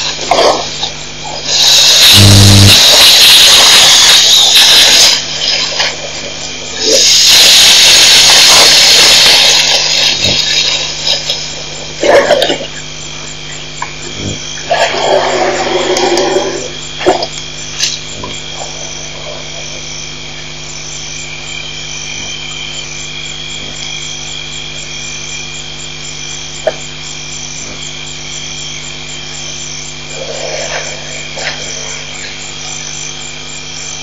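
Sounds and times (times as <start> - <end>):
low hum: 0.0 - 4.6
night chorus of calling animals: 0.0 - 34.0.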